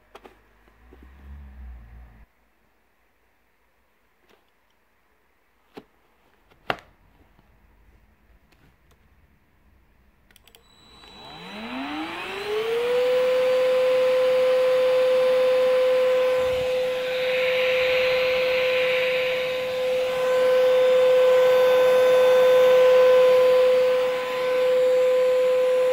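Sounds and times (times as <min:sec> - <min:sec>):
vacuum motor whining: 0:10.6 - 0:25.9.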